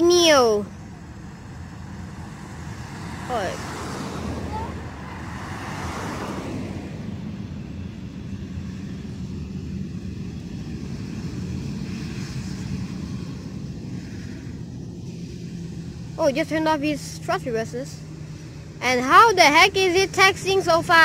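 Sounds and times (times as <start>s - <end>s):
jet engines in reverse thrust: 0.0s - 21.0s.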